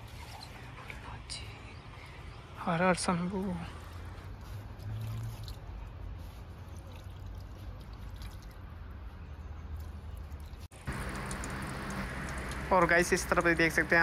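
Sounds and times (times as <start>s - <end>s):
water trickling onto stone: 4.0s - 8.9s, 9.7s - 14.0s.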